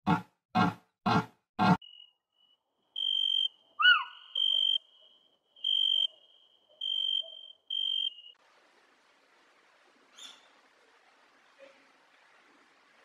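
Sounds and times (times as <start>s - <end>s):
bird call rising and falling: 3.0s - 8.4s.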